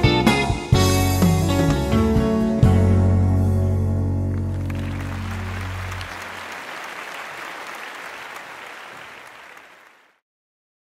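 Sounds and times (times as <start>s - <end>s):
audience applauding: 4.3s - 10.2s.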